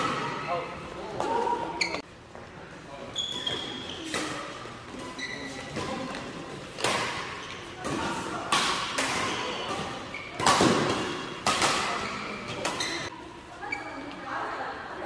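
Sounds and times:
racket hitting shuttlecock: 0:05.7 - 0:13.0.

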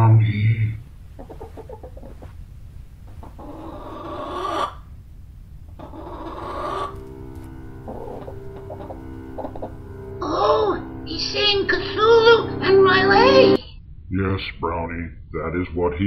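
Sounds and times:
low rumbling drone: 0:04.8 - 0:15.4
eerie held music chord: 0:05.6 - 0:13.6.

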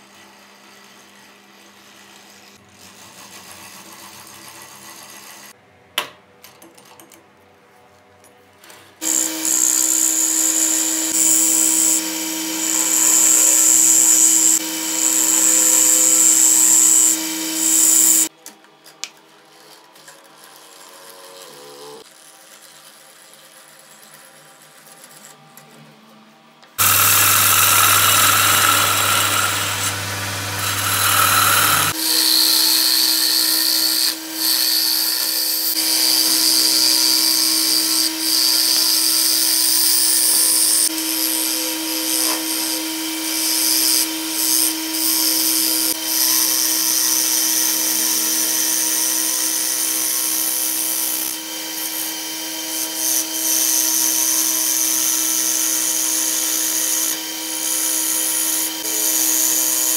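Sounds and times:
gouge shaving wood: 0:09.0 - 0:18.3, 0:26.8 - 0:36.9
lathe motor hum: 0:09.0 - 0:18.3, 0:26.8 - 0:37.8.

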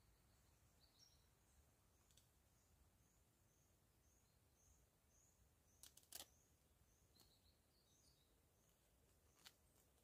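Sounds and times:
small bird chirping: 0:00.0 - 0:10.0
faint sharp clicks: 0:02.0 - 0:02.3, 0:05.8 - 0:06.3.

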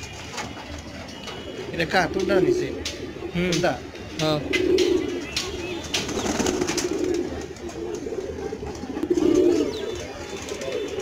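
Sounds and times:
pigeons cooing: 0:00.0 - 0:11.0
wings flapping: 0:05.4 - 0:08.0.

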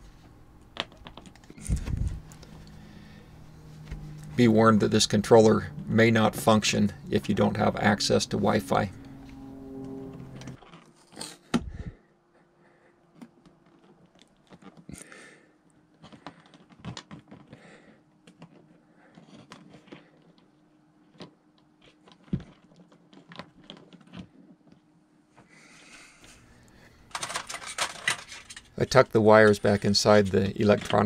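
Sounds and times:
clicks and rustles of handling parts: 0:00.0 - 0:02.8, 0:15.9 - 0:17.6, 0:18.2 - 0:24.9, 0:26.2 - 0:31.0
faint steady hum: 0:00.0 - 0:10.6.

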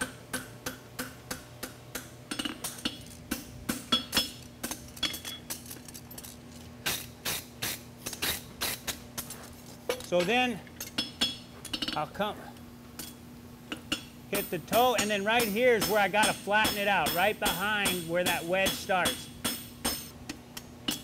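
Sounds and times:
hammer clanking on anvil: 0:13.8 - 0:20.1.

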